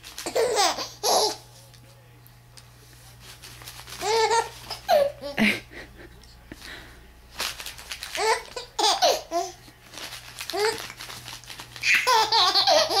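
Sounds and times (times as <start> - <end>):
paper crumpling: 0.0 - 0.6, 3.0 - 4.8, 7.3 - 8.7, 9.8 - 13.0
baby laughing: 0.2 - 1.4, 4.0 - 5.7, 8.2 - 9.6, 11.8 - 13.0.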